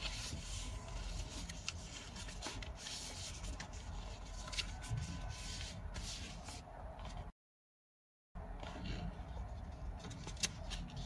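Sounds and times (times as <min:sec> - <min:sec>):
paper rustling on table: 0:00.0 - 0:07.2.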